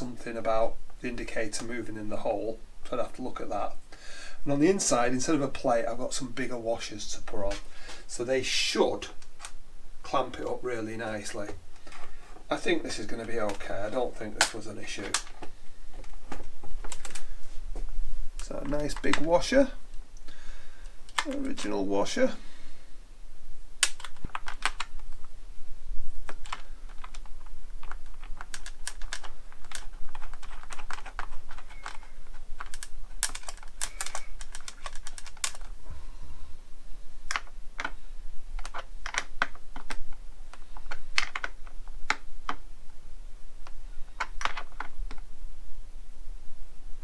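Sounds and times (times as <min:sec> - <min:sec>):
metal parts tapping on plastic: 0:23.8 - 0:25.0, 0:26.3 - 0:35.7, 0:38.6 - 0:42.6, 0:44.2 - 0:45.2.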